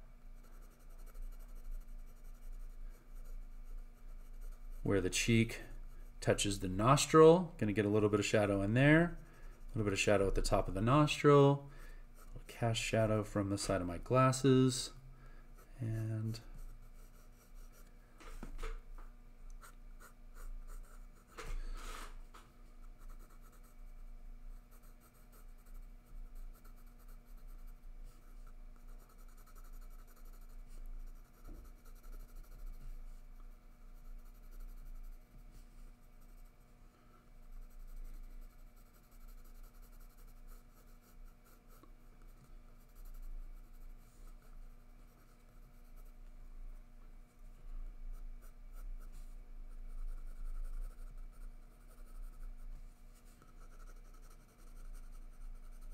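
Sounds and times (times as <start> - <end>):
pencil scratching on paper: 0.3 - 7.0, 16.3 - 17.9, 22.8 - 23.9, 24.5 - 36.8, 37.4 - 46.2, 48.1 - 55.9.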